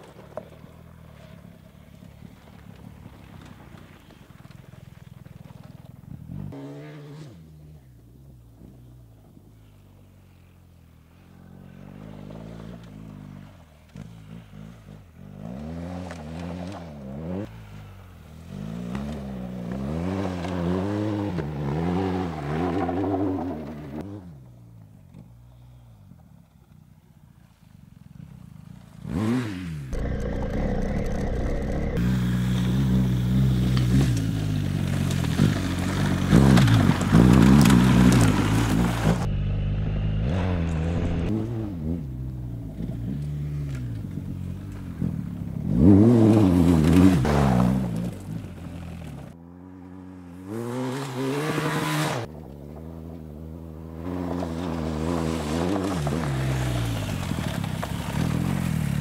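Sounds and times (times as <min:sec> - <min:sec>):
motorcycle engine revving: 0:06.1 - 0:08.4, 0:11.2 - 0:24.6, 0:28.4 - 0:59.0.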